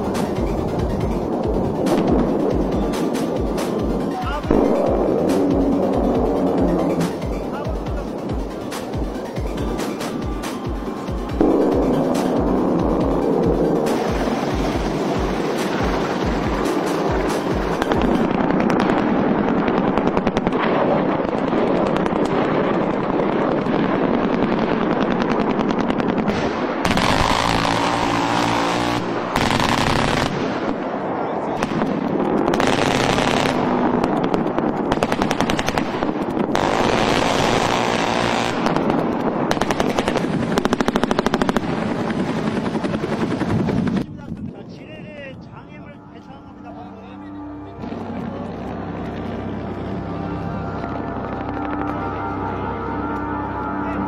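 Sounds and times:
rapid automatic gunfire: 13.9s - 30.6s, 31.6s - 44.0s.

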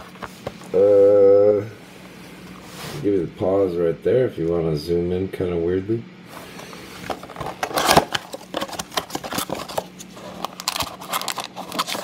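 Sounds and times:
cardboard box being opened: 7.1s - 12.0s
cardboard crinkling and clicks: 7.1s - 12.0s.

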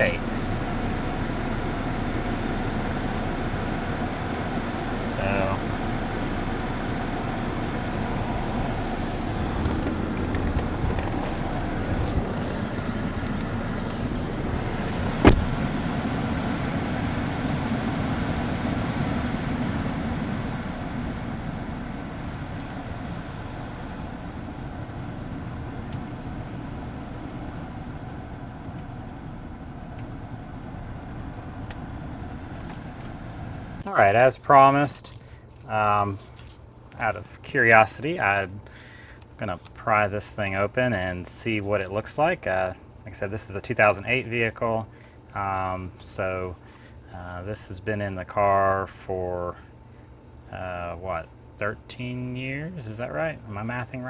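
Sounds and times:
car blower and engine rush: 0.0s - 33.9s.

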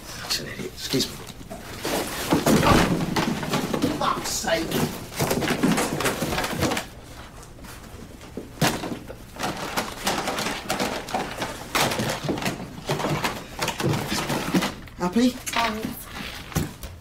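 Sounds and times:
cardboard boxes shuffled on floor: 0.9s - 8.5s.

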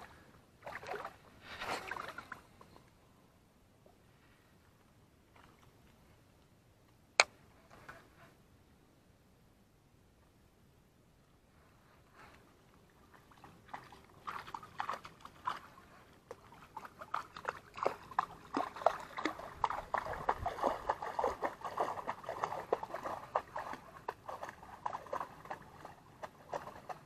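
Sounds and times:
water splashing and sloshing: 0.0s - 2.8s, 5.1s - 6.4s, 12.0s - 27.0s.

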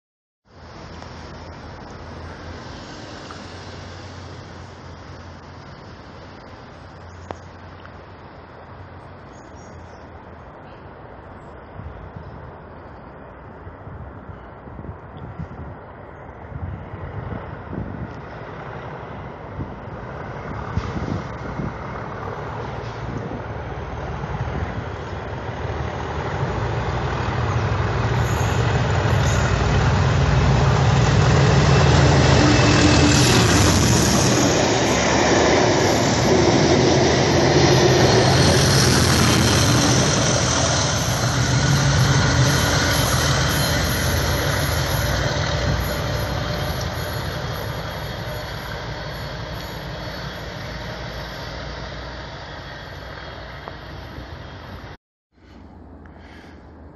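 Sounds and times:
diesel locomotive engine: 0.5s - 56.9s
train wheels and coaches rushing: 16.7s - 55.0s.

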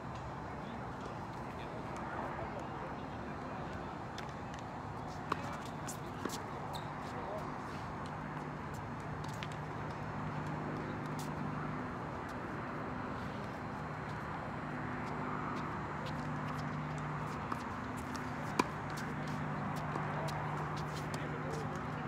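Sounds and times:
tennis racket hitting ball: 16.0s - 21.7s.

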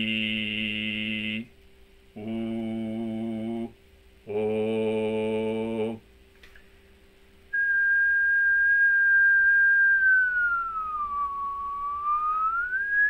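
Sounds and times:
person whistling long note: 7.5s - 13.0s.

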